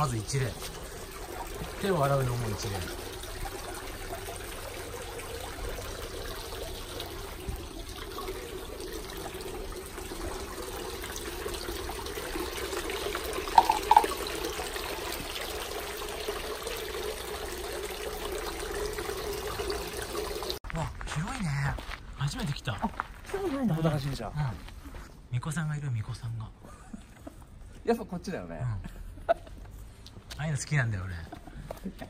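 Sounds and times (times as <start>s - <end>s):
water trickling from spout: 0.0s - 20.6s.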